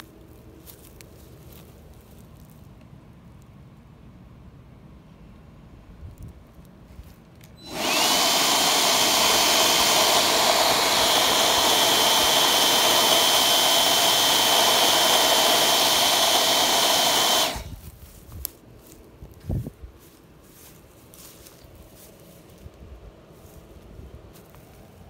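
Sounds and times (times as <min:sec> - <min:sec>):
cordless blower motor whine: 0:07.6 - 0:18.0.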